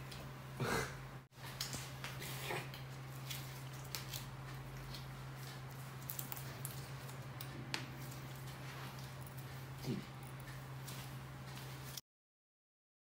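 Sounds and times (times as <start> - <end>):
steady low hum: 0.0 - 12.0
gloved hands clicking and rustling: 2.8 - 12.0.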